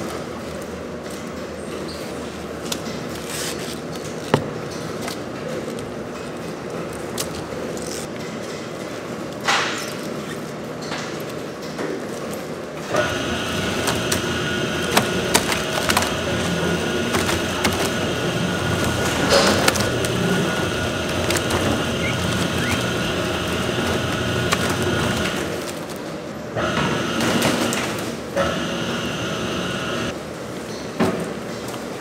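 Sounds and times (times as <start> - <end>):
machinery hum: 11.4 - 30.6.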